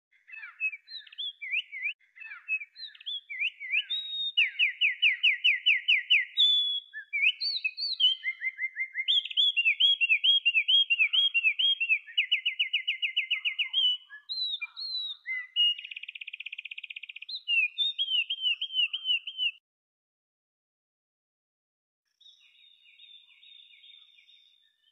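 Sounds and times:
wren singing: 0:00.2 - 0:19.6.

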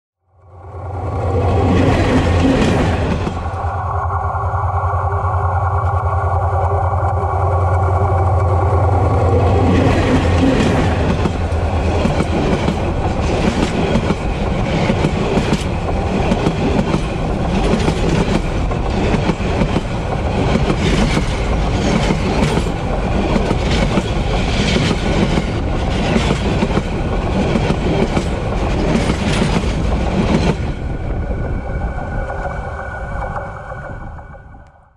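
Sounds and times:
locomotive deep hum: 0:00.5 - 0:24.6
wheel on rail rumble: 0:00.6 - 0:34.7
train wheels clickety-clack: 0:09.3 - 0:30.8.

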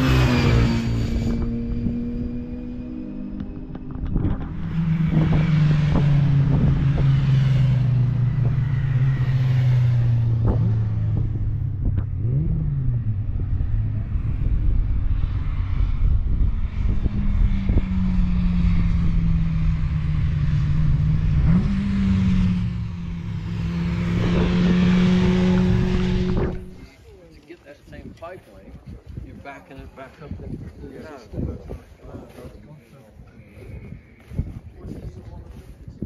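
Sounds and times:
race car engines passing: 0:00.0 - 0:27.4.

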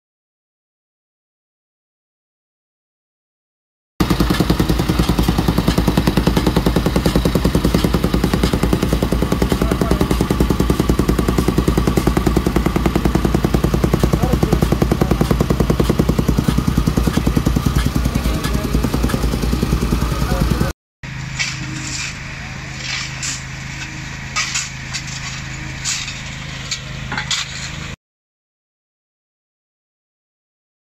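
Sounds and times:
tamping rammer pounding gravel: 0:04.0 - 0:28.0.

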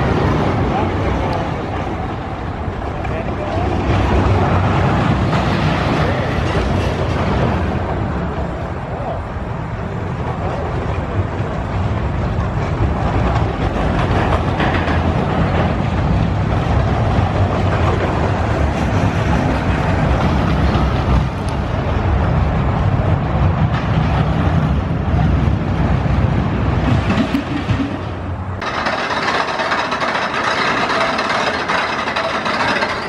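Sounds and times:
roller coaster rumbling on track: 0:00.0 - 0:33.0.

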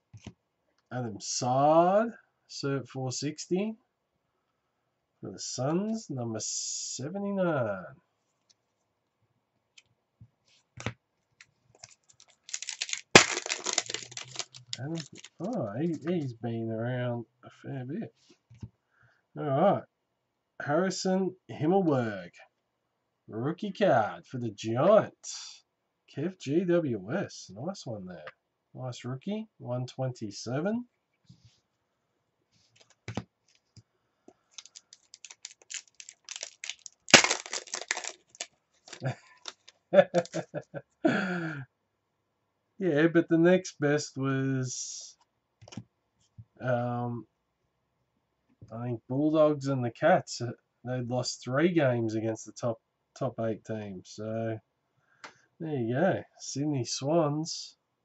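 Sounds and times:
foil pack crackling: 0:11.8 - 0:15.6, 0:34.6 - 0:40.4
wrapper click: 0:11.8 - 0:16.0, 0:34.6 - 0:40.4
wrapper crinkling: 0:11.8 - 0:16.1, 0:34.6 - 0:40.4
wrapper tearing: 0:11.8 - 0:16.1, 0:34.6 - 0:40.4.

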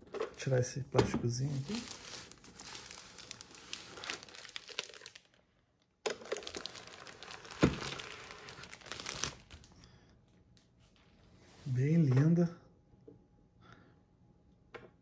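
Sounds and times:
plastic sleeve crinkling: 0:01.4 - 0:05.5, 0:06.1 - 0:09.8.

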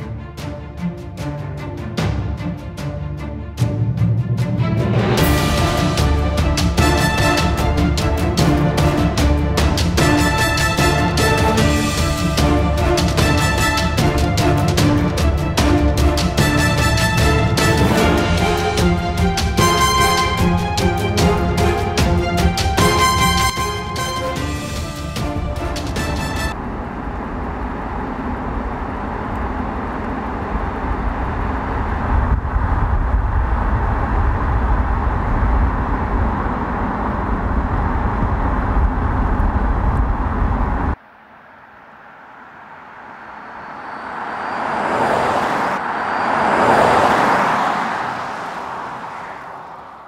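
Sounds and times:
vehicle passing: 0:24.4 - 0:50.0
tyre and wind noise: 0:26.6 - 0:41.0.

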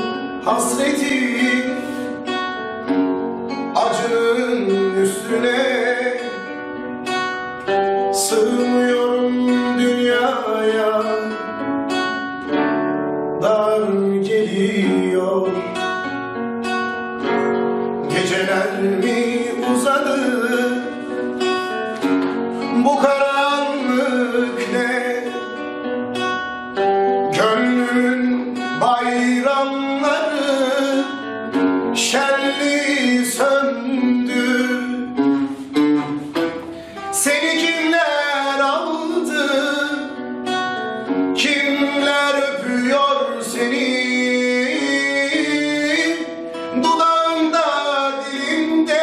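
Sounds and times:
acoustic guitar: 0:00.0 - 0:49.0
pop-folk song: 0:00.0 - 0:49.0.

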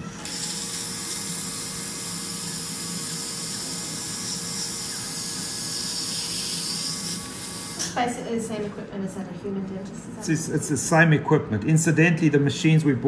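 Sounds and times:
dental polisher hissing: 0:00.2 - 0:08.0.

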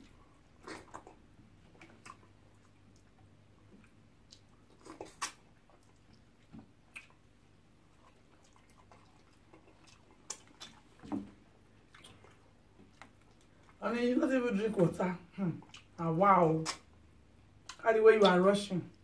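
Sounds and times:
wet chewing and eating sounds: 0:00.0 - 0:13.8, 0:14.8 - 0:17.0, 0:17.6 - 0:19.0.

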